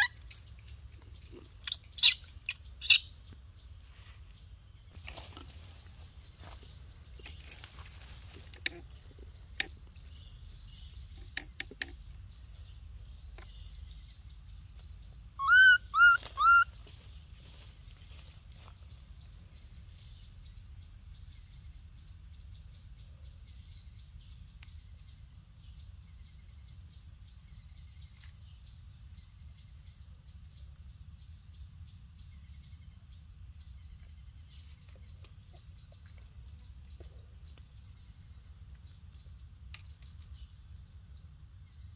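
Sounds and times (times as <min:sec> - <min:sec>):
loud arched bird calls: 0:15.2 - 0:16.8
bird chirping high notes: 0:15.4 - 0:16.7.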